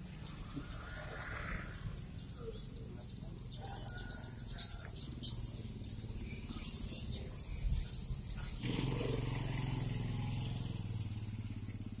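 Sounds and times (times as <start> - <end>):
birds twittering: 0.0 - 12.0
motorcycle engine running: 0.0 - 12.0.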